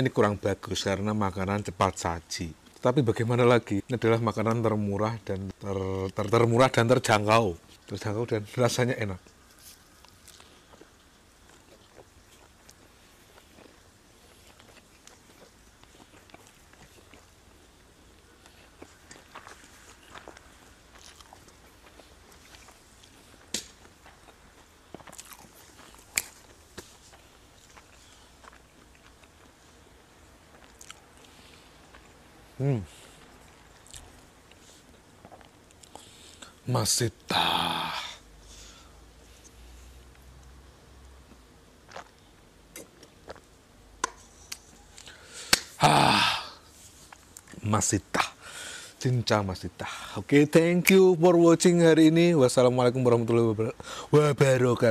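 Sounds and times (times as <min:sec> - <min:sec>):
person chewing food: 0:09.2 - 0:36.6, 0:41.2 - 0:45.7
lip smacks: 0:41.8 - 0:45.8.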